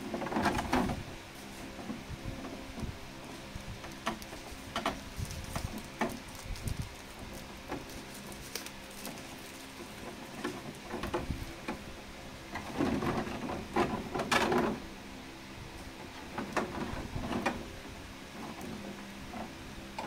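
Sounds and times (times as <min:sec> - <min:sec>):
plastic wrapping crinkling: 0:03.6 - 0:10.8.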